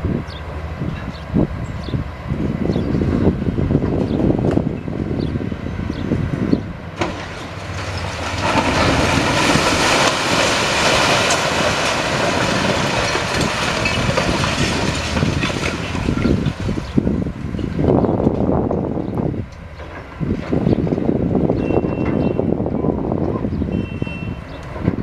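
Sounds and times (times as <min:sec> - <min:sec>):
excavator diesel engine: 0:00.0 - 0:25.0
rubble crashing down: 0:07.0 - 0:17.0.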